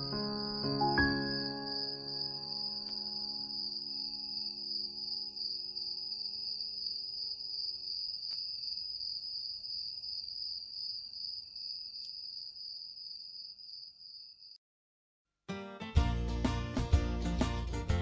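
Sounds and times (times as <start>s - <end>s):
soft music: 0.0s - 6.4s, 15.5s - 18.0s
crickets chirping: 0.0s - 14.6s.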